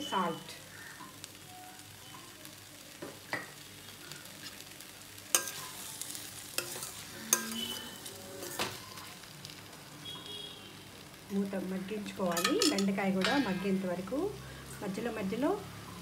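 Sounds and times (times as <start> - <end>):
frying sizzle: 0.0 - 16.0
spoon stirring vegetables: 4.4 - 9.3, 12.1 - 13.6
spoon clinking against pan: 5.4 - 5.6, 6.6 - 7.8, 12.3 - 13.5.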